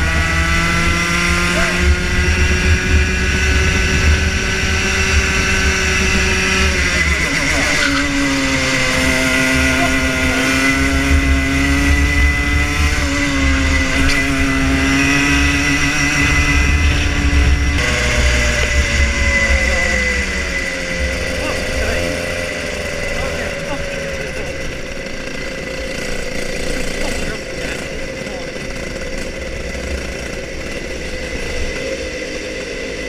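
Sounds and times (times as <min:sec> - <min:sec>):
kart engine running hard: 0:00.0 - 0:33.0.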